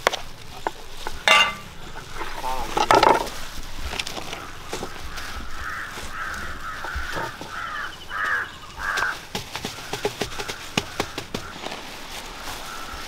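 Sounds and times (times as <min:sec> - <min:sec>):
crow cawing: 0:04.2 - 0:11.7, 0:12.6 - 0:13.0.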